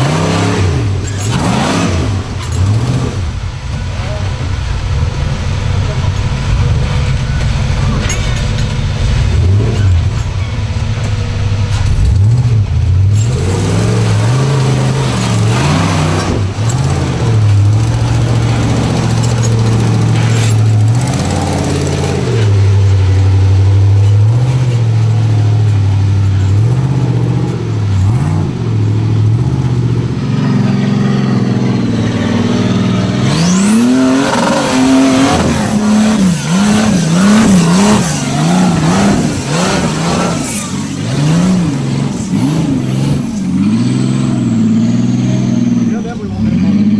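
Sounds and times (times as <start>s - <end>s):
engine revving: 0.0s - 46.9s
higher-pitched engine blipping: 12.1s - 46.9s.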